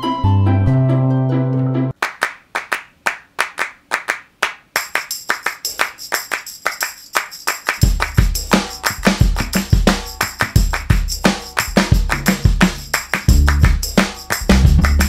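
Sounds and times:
clap-like percussion beat: 0:02.0 - 0:15.0
high jingling percussion: 0:04.8 - 0:15.0
kick drum thumps: 0:07.8 - 0:15.0.

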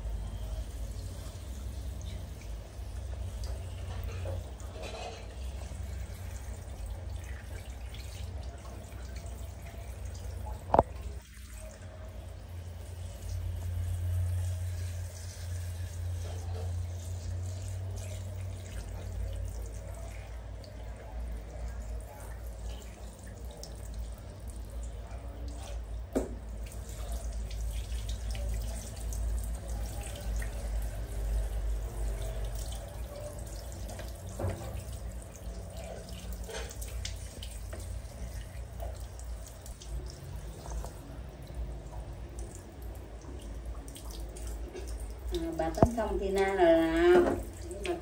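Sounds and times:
sharp drips: 0:00.0 - 0:48.0
water splashing on tiled floor: 0:00.4 - 0:48.0
shower water spraying: 0:12.8 - 0:20.1.

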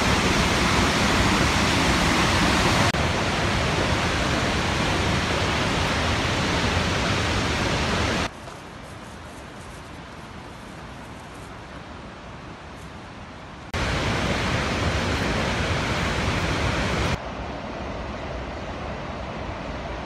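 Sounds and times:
waterfall rushing: 0:00.0 - 0:08.3, 0:13.7 - 0:17.2.

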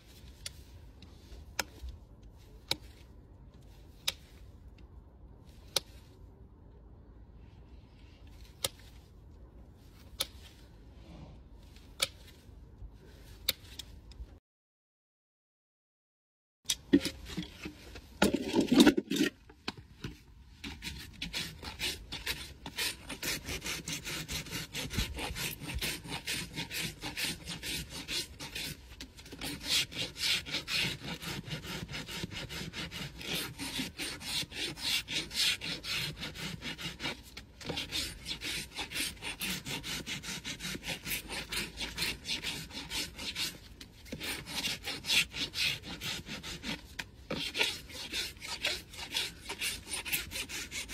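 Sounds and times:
rasp scraping hoof: 0:20.6 - 0:50.9.

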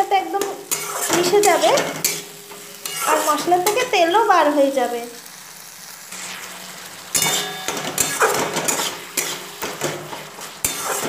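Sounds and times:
metal spatula scraping metal pan: 0:00.7 - 0:03.9, 0:06.1 - 0:11.0.

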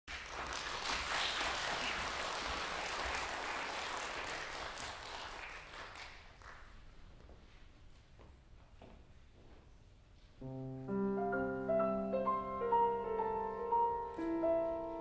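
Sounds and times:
audience applauding: 0:00.1 - 0:06.8.

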